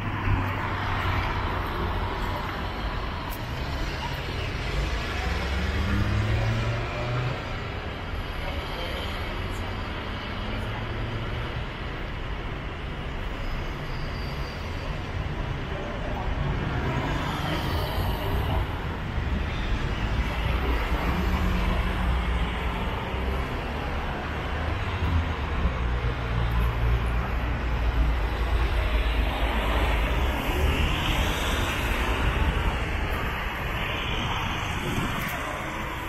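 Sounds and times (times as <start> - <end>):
city traffic: 0.0 - 36.0
wind rumble on microphone: 31.5 - 36.0.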